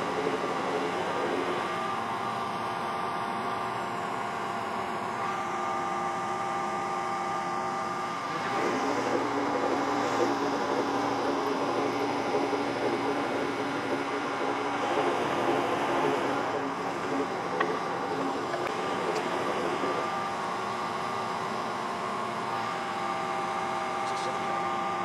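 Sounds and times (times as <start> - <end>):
metal shaper machine running: 0.0 - 25.0.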